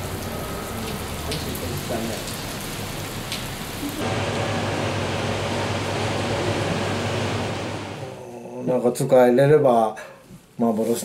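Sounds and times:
water drips: 0.0s - 4.0s
rain on wet pavement: 0.0s - 8.0s.

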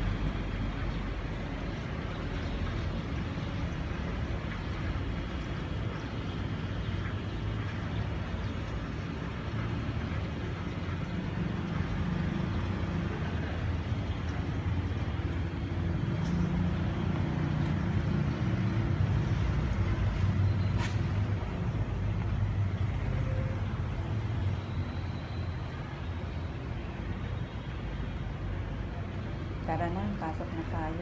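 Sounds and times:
road traffic noise: 0.0s - 31.0s.

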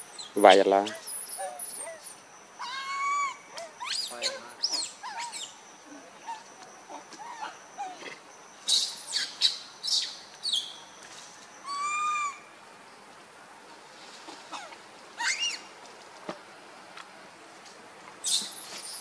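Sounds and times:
macaque squeals: 0.8s - 5.6s, 6.2s - 8.1s, 11.6s - 12.4s, 14.5s - 15.7s
whistle-like monkey call: 0.8s - 5.6s, 8.6s - 10.7s, 11.6s - 12.5s, 15.2s - 15.6s.

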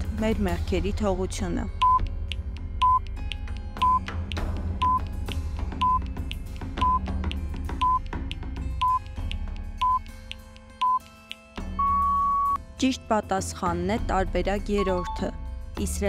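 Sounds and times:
background music with bass and percussion: 0.0s - 12.6s
countdown timer beeping: 1.6s - 10.1s, 10.8s - 12.6s, 14.8s - 15.4s.

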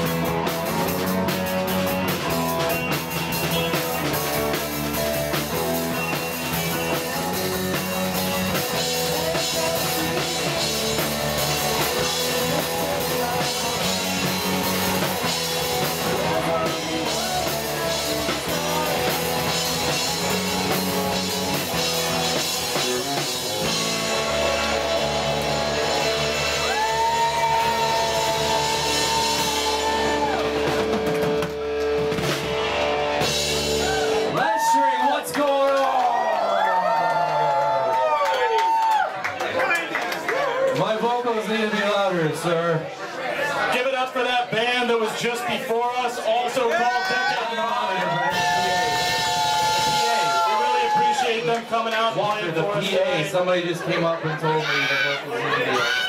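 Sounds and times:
drum kit: 0.0s - 35.0s, 48.1s - 52.9s
electric guitar: 0.0s - 35.0s, 48.0s - 51.3s
bass guitar: 0.0s - 35.3s, 47.0s - 53.2s
person singing: 11.5s - 20.6s.

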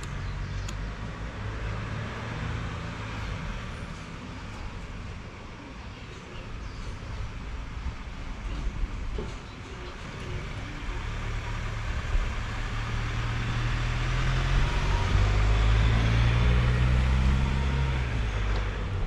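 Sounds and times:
car driving past: 0.4s - 4.2s, 11.0s - 19.0s.

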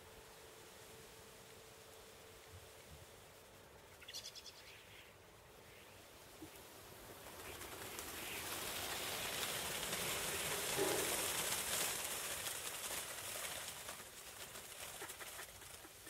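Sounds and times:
starling calls: 3.9s - 16.0s
rush of bird wings: 6.2s - 16.0s.

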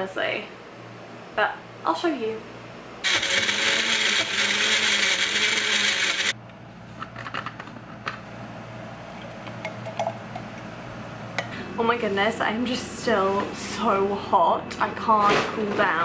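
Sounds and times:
blender running: 3.0s - 6.4s.

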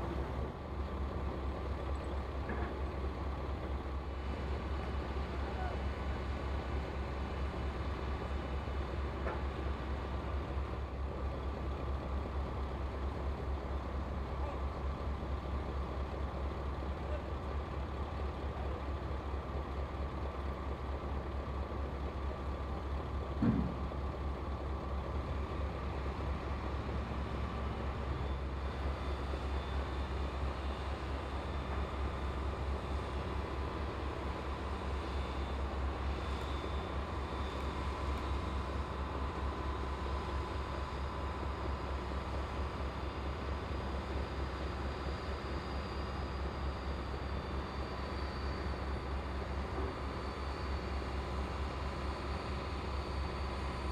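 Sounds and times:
diesel engine drone: 0.0s - 53.9s
faint steady whine: 0.0s - 53.9s
single knock: 23.4s - 23.8s.

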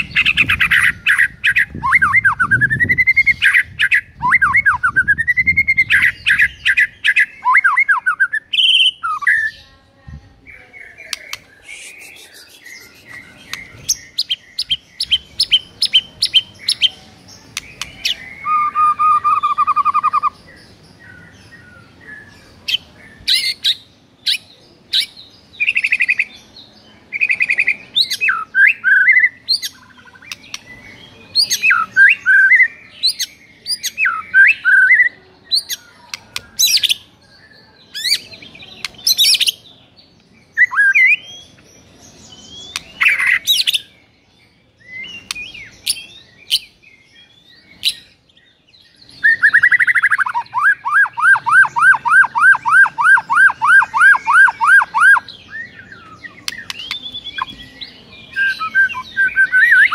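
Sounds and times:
bird singing whistled phrases: 0.2s - 9.6s, 17.6s - 20.4s, 27.2s - 30.6s, 31.4s - 35.8s, 40.6s - 41.3s, 49.2s - 59.9s.

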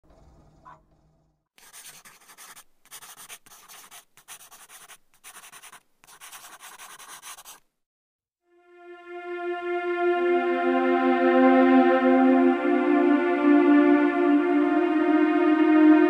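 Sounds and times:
scratchy rustling noise: 1.6s - 7.6s
synthesizer music tones: 8.6s - 16.0s.

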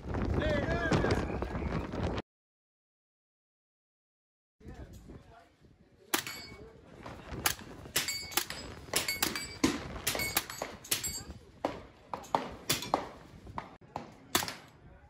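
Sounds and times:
steel targets ringing: 6.2s - 6.6s, 8.0s - 11.4s
suppressed gunshots: 14.0s - 14.8s.

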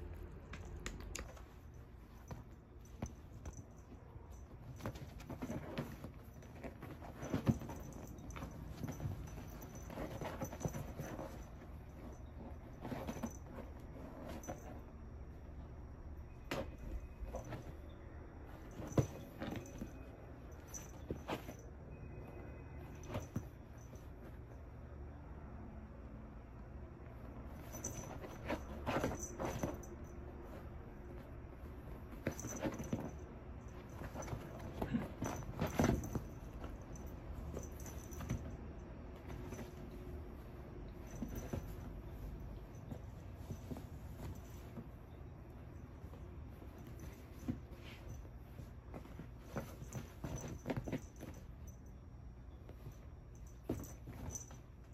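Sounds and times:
kitten paws scratching leather: 0.2s - 15.5s.

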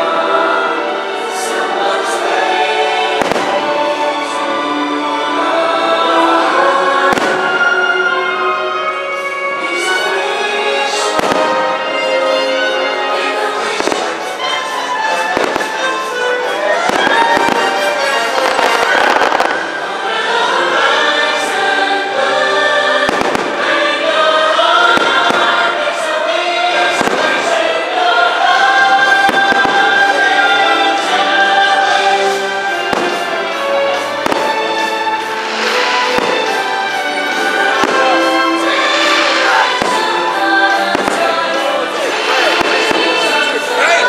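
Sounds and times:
loud music with choral singing: 0.0s - 44.0s
firework shells bursting: 32.9s - 41.4s.

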